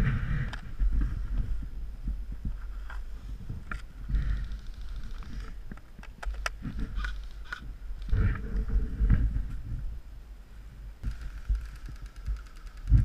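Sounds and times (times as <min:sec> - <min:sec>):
wind rumble: 0:00.0 - 0:13.0
camera handling noise: 0:03.6 - 0:08.7, 0:11.0 - 0:13.0
sharp clicks: 0:03.7 - 0:08.2, 0:11.0 - 0:13.0.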